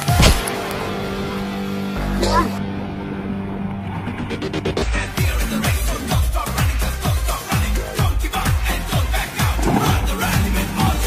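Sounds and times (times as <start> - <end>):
electronic dance music: 4.4 - 11.0.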